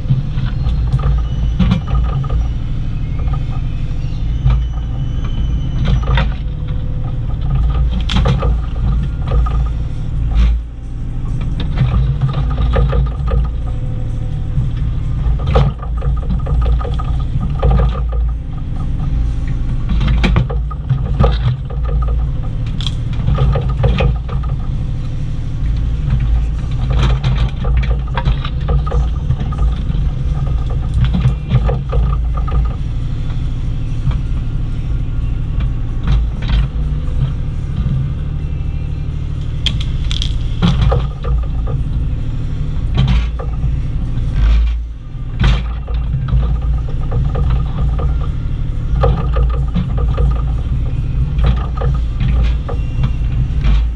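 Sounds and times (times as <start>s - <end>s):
excavator diesel engine running: 0.0s - 53.9s
bucket clunking and scraping: 25.7s - 33.2s.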